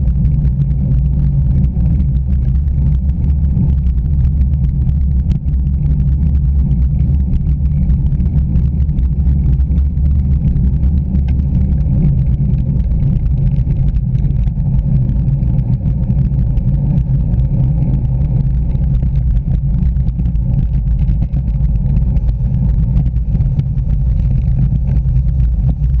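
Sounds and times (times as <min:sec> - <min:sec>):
tyre noise on tarmac: 0:00.0 - 0:26.0
wind buffeting microphone: 0:00.0 - 0:26.0.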